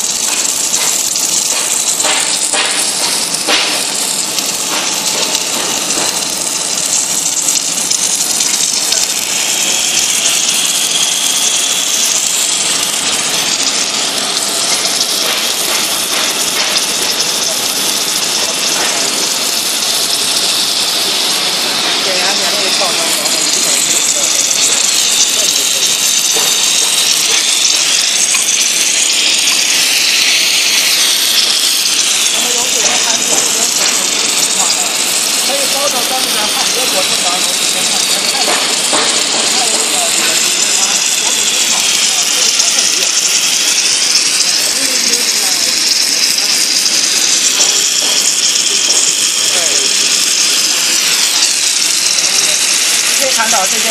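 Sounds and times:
welding hiss: 0:00.0 - 0:53.9.

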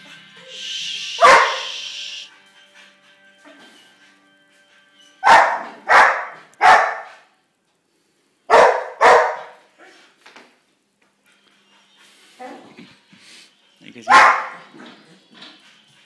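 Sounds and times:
dog barking: 0:01.2 - 0:01.8, 0:05.2 - 0:07.3, 0:08.5 - 0:09.7, 0:14.0 - 0:14.7.

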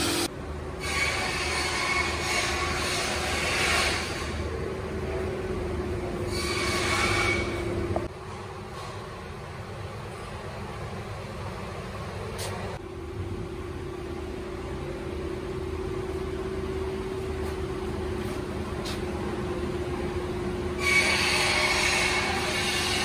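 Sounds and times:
machine humming: 0:00.0 - 0:01.0.

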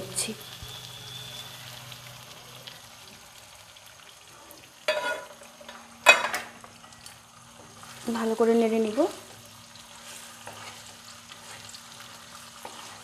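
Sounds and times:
oil sizzling in a wok: 0:00.0 - 0:13.0
spatula scraping a wok: 0:04.9 - 0:05.4, 0:09.8 - 0:13.0.

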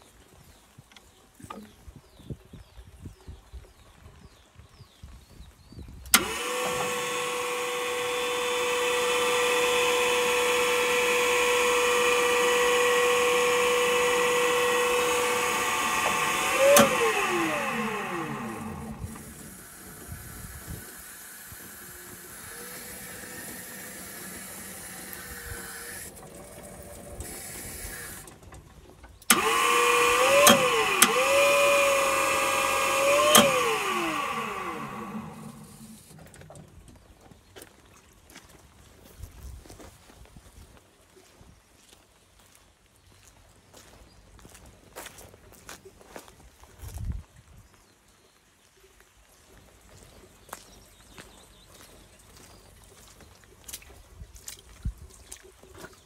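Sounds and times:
forklift clicks: 0:06.1 - 0:07.2, 0:13.4 - 0:19.7, 0:29.2 - 0:36.2
electric motor whining: 0:06.1 - 0:28.5, 0:29.2 - 0:36.2.

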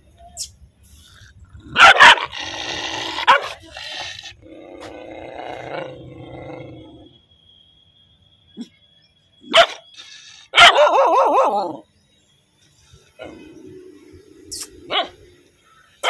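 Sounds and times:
dog snarling: 0:01.6 - 0:06.5
dog barking: 0:01.7 - 0:02.4, 0:03.2 - 0:03.6, 0:09.5 - 0:09.9, 0:10.5 - 0:11.7, 0:14.9 - 0:15.3
dog growling low: 0:02.3 - 0:07.1.

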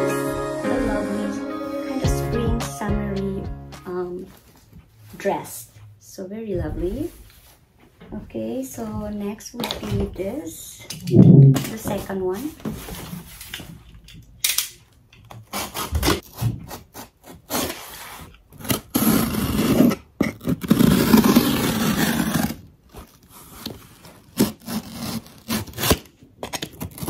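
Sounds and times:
box cutter scraping cardboard: 0:15.4 - 0:22.7, 0:23.3 - 0:27.0.

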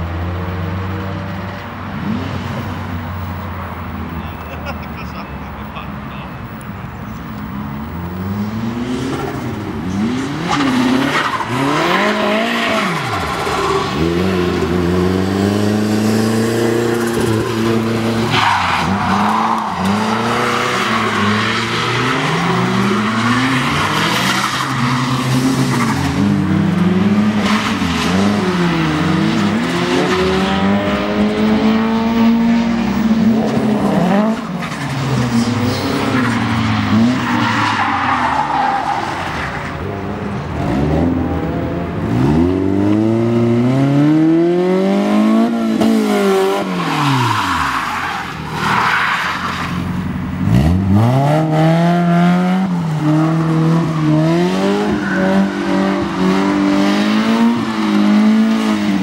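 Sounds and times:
car engines revving: 0:00.0 - 0:59.0
tyre squeal: 0:53.8 - 0:56.6.

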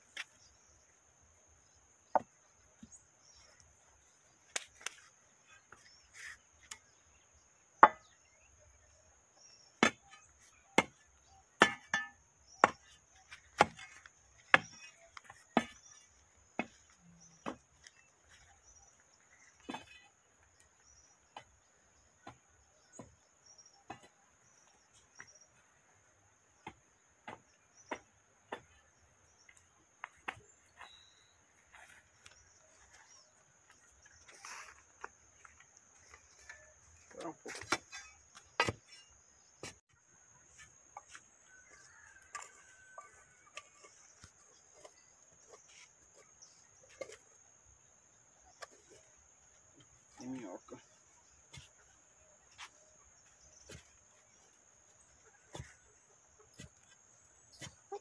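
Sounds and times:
iron bar tamping earth: 0:04.4 - 0:25.6, 0:26.5 - 0:58.0.

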